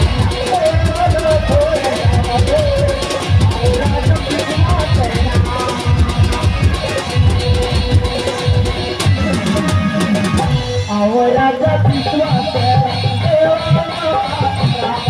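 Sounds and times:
dense drumming: 0.0 - 10.8.

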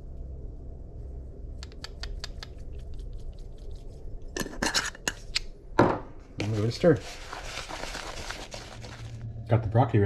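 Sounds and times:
low steady hum: 0.0 - 10.0
spice bottle shaking taps: 1.6 - 3.4.

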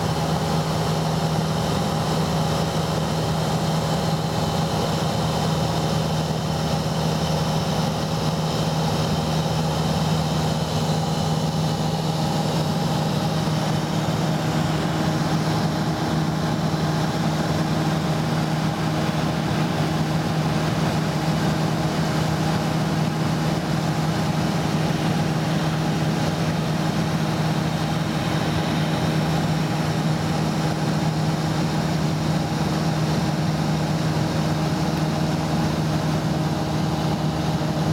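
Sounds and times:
aircraft engine droning in cabin: 0.0 - 37.9.

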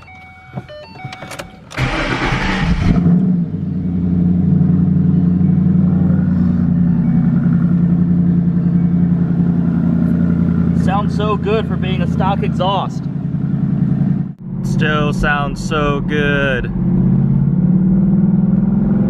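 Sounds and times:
car engine starting and idling: 0.0 - 19.0
starter motor cranking: 1.4 - 3.0.

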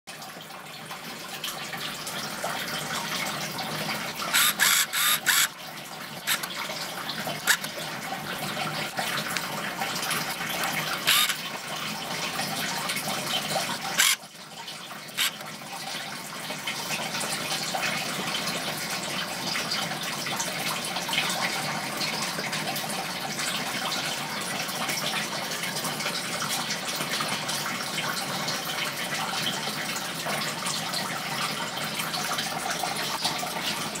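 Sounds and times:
running aquarium water: 0.1 - 34.0
sharp clicks: 6.3 - 6.6, 7.5 - 7.7, 11.1 - 11.4.

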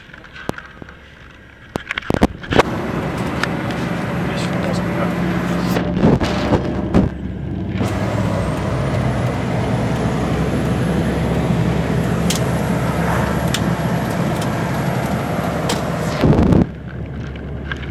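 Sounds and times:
road and wind noise: 2.0 - 17.9
truck engine under load: 2.4 - 17.9
thin high whine: 2.6 - 5.9, 7.8 - 16.7
loud burst: 7.8 - 16.8.

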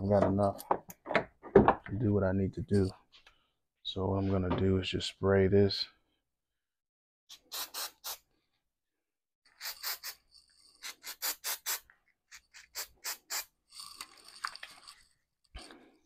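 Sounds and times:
aerosol spray hissing: 7.4 - 8.2, 9.6 - 10.2, 10.8 - 11.9.

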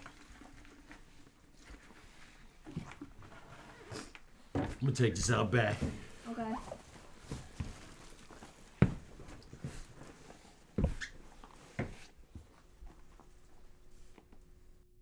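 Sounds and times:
footsteps: 4.5 - 13.6
plastic bag rustling: 6.0 - 10.7.

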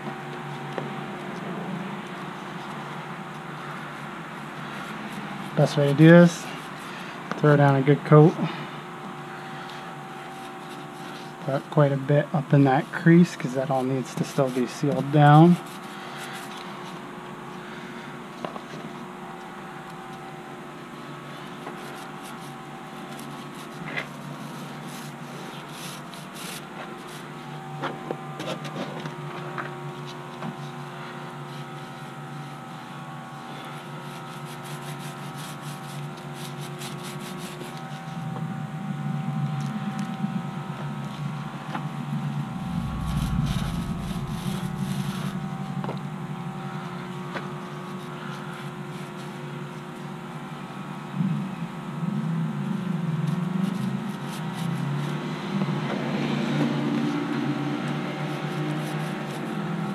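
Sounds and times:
background hum: 0.0 - 59.9
applicator rubbing on fabric: 21.7 - 27.4, 33.5 - 38.1
low rumble: 38.8 - 47.7.

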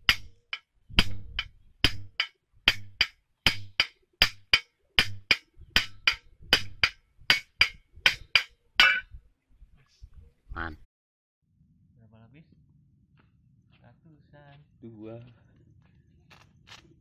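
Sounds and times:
sharp wooden knocks: 0.0 - 9.0.

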